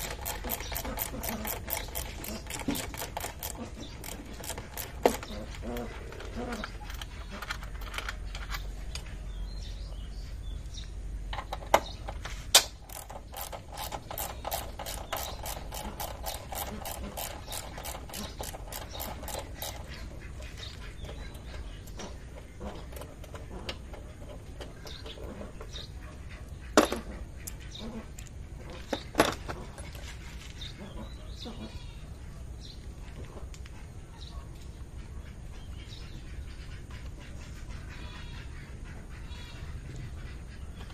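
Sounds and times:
socket ratchet clicking: 0.0 - 5.7, 12.6 - 20.0.

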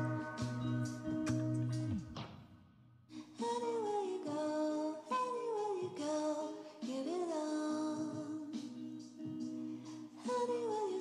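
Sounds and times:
person singing melody: 0.0 - 2.1
held accompaniment: 0.0 - 2.5.

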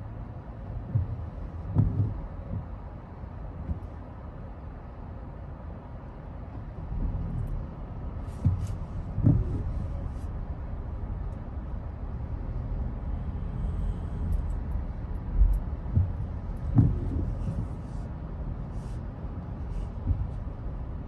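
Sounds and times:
car engine and tyre noise: 0.0 - 21.0
windshield wiper sweeping: 0.6 - 2.9, 7.5 - 11.6, 13.4 - 21.0
soft low thumps: 0.6 - 4.0, 6.8 - 21.0.

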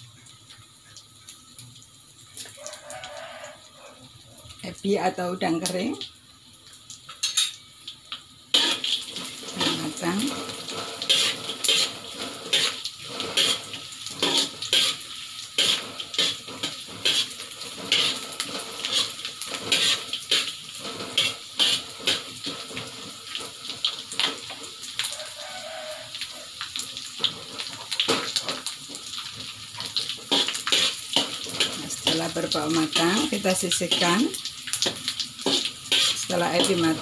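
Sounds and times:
shrimp sizzling in hot oil: 0.0 - 37.0
metal spatula scraping a wok: 8.5 - 22.9, 30.3 - 34.1, 34.8 - 37.0.

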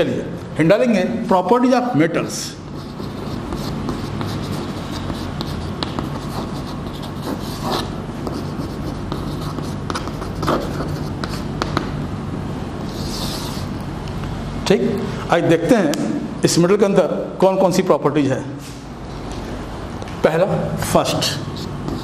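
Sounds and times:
steady low hum: 0.0 - 22.0
chalk scratching on blackboard: 2.6 - 11.8, 12.8 - 13.8, 21.1 - 22.0.

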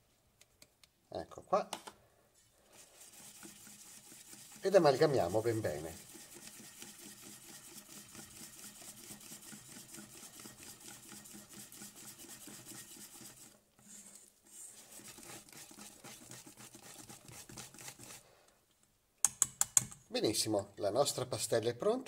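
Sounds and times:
whisk beating batter in metal bowl: 2.7 - 18.2.

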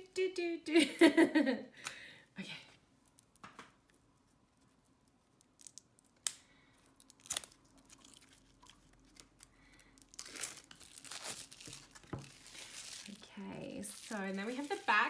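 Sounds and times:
plastic shrink-wrap crinkling: 3.0 - 15.0.

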